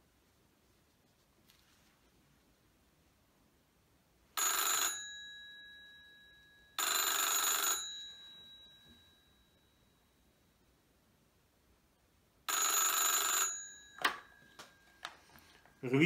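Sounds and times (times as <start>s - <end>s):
telephone bell ringing: 4.4s - 10.3s, 12.5s - 16.0s.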